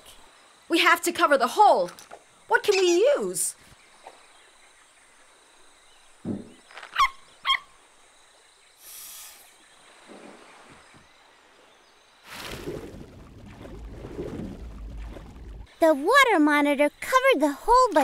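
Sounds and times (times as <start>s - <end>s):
soft thump: 6.2s - 6.6s
brief hiss: 8.8s - 9.6s.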